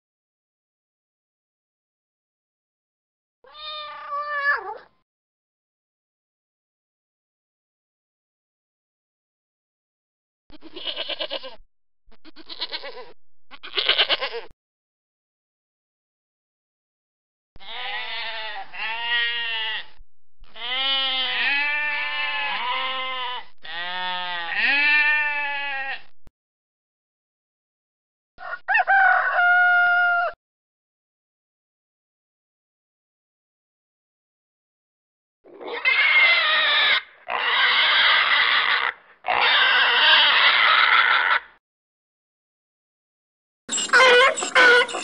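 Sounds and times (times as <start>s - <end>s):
sheep bleating: 10.5s - 11.6s, 12.2s - 14.5s, 17.6s - 26.1s, 35.6s - 41.5s
pig squealing: 35.5s - 41.6s, 43.7s - 45.0s.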